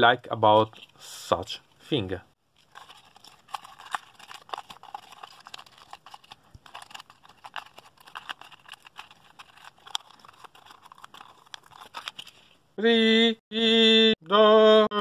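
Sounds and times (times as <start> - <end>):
twist ties rustling on cardboard: 2.5 - 12.6.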